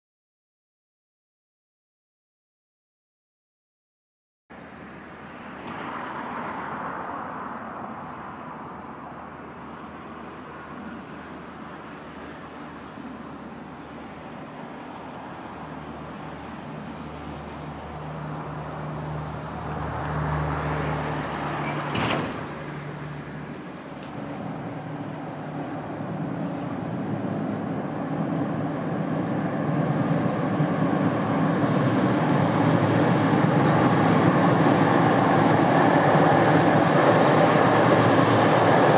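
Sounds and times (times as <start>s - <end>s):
low engine hum: 4.9s - 38.9s
freight train rumble on bridge: 5.1s - 38.9s.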